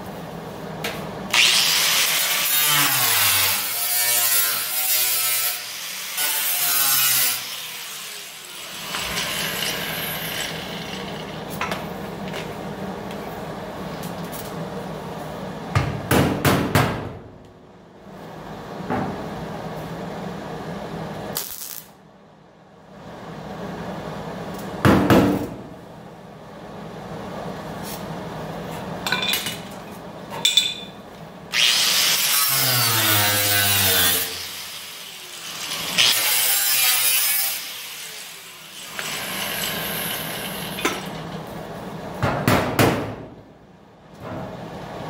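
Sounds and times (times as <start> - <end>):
angle grinder grinding steel: 1.4 - 11.4.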